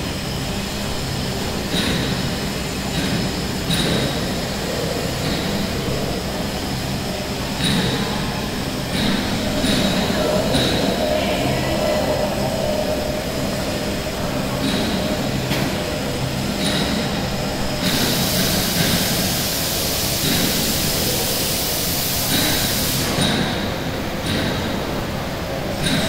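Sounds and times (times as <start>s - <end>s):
printing press mechanical rumble: 0.0s - 26.0s
high hiss: 17.2s - 23.2s.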